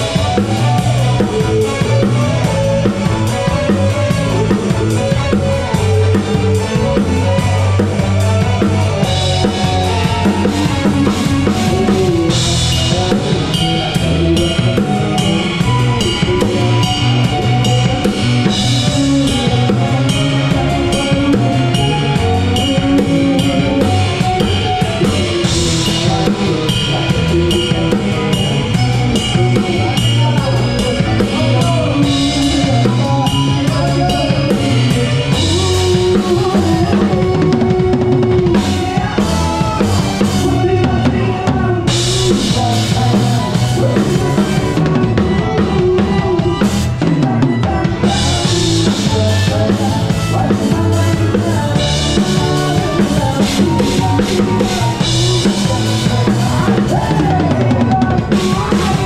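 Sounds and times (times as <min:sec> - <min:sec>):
live band music: 0:00.0 - 0:59.0.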